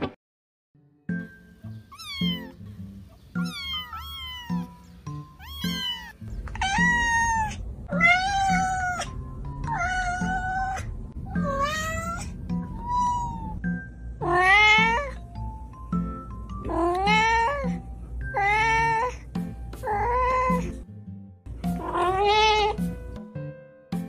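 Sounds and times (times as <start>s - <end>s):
cat meowing: 1.9s - 2.6s, 3.3s - 13.6s, 14.2s - 15.2s, 16.7s - 19.2s, 19.8s - 20.8s, 21.8s - 22.9s
kittens mewing: 3.3s - 13.6s.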